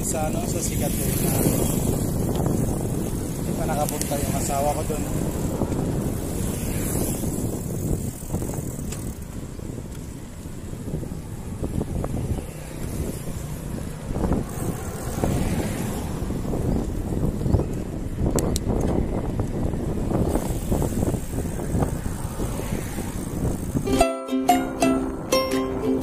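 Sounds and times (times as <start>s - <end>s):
wind buffeting microphone: 0.0s - 24.0s
road and tyre noise: 0.0s - 26.0s.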